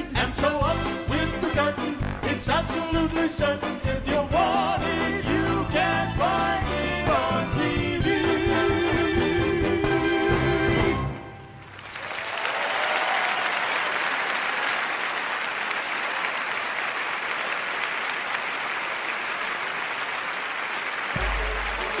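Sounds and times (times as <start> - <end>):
audience applauding: 11.4 - 22.0.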